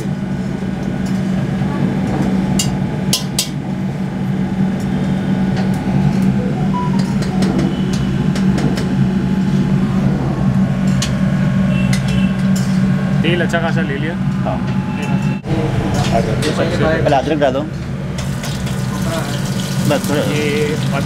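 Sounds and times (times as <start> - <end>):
low hum of kitchen machinery: 0.0 - 21.0.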